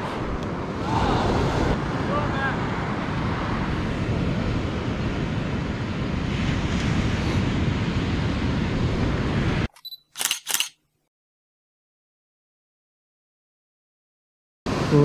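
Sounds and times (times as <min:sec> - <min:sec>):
ocean surf breaking on sand: 0:00.0 - 0:09.7, 0:14.7 - 0:15.0.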